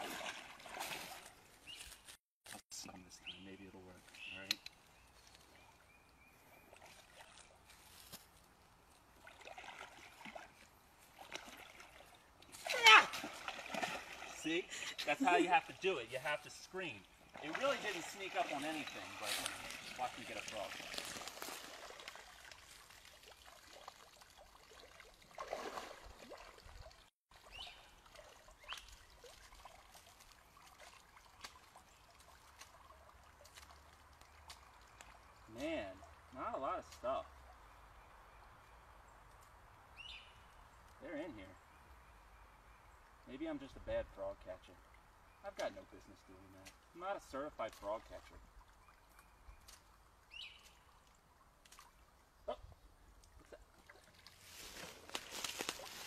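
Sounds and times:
net splashing in water: 0:00.0 - 0:01.4, 0:09.2 - 0:14.5, 0:17.3 - 0:27.0
pond water sloshing and trickling: 0:00.0 - 0:56.0.

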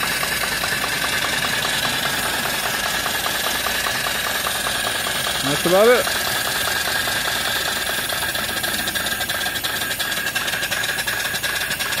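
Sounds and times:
hiss of escaping steam: 0:00.0 - 0:12.0
steam engine chuffing: 0:00.0 - 0:12.0.

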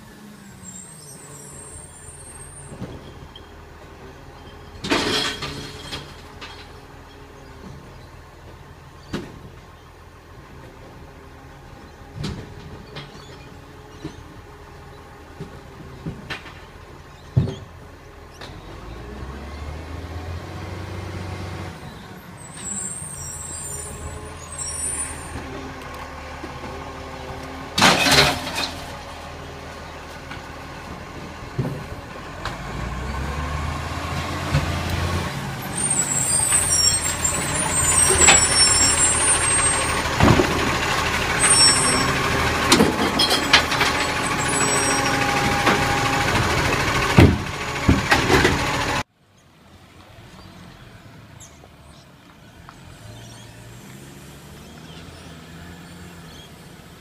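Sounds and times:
garbage truck diesel engine: 0:00.0 - 0:57.0
metal clanks: 0:04.4 - 0:06.8, 0:27.8 - 0:29.0, 0:41.4 - 0:45.9.

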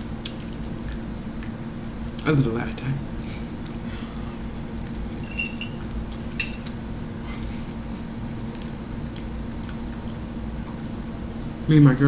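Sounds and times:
steady low hum: 0:00.0 - 0:12.0
quiet chewing: 0:00.2 - 0:02.3, 0:03.1 - 0:05.2, 0:08.4 - 0:11.0.

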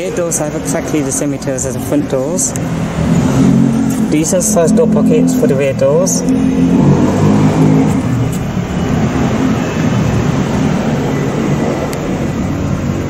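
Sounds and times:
loud rumbling noise: 0:01.8 - 0:13.0
low droning hum: 0:02.5 - 0:08.9.

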